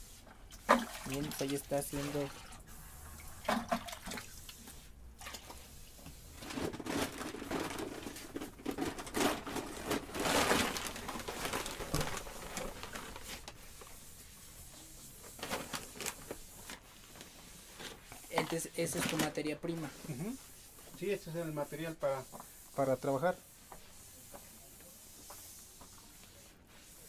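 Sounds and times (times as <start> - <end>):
paper sack rustling and crinkling: 6.1 - 14.0, 15.0 - 23.3.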